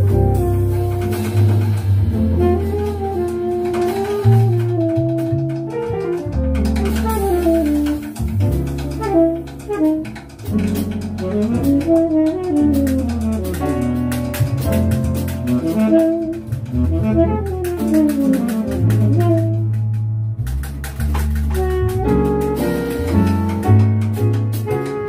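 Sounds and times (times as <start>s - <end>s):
drums with cymbal strokes: 0.0s - 3.0s
saxophone melody: 0.0s - 8.2s, 8.9s - 10.2s, 11.2s - 14.0s, 15.5s - 19.6s
double bass: 0.0s - 25.0s
piano: 0.0s - 25.0s.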